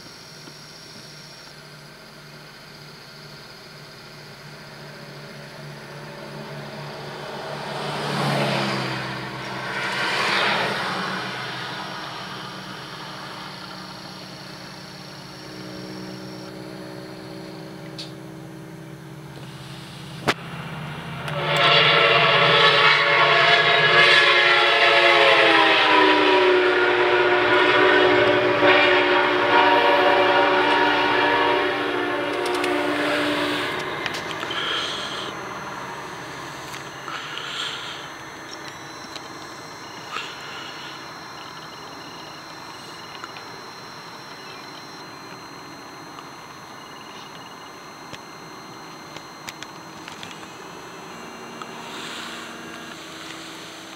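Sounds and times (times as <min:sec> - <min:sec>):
train passing: 0:03.7 - 0:53.9
multi-note train horn: 0:05.0 - 0:18.1, 0:21.1 - 0:38.2.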